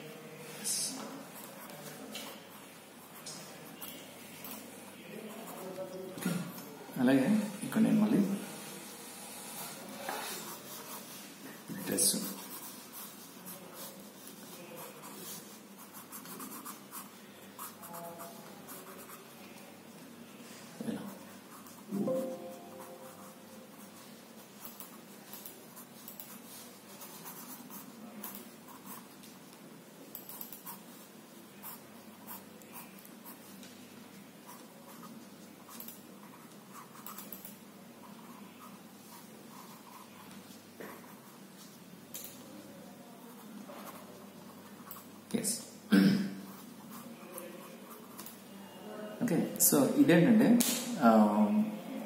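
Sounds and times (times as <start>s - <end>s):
coloured pencil strokes on paper: 8.4s - 19.6s, 21.0s - 29.1s
coloured pencil scratching paper: 8.5s - 11.3s.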